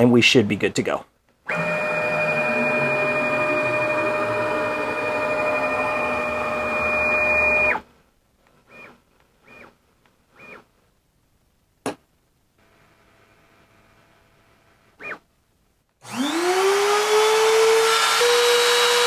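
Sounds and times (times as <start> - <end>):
cnc router two-tone whine: 1.5 - 7.8, 16.1 - 19.0
faint machine whirs: 1.5 - 7.9, 8.6 - 10.7.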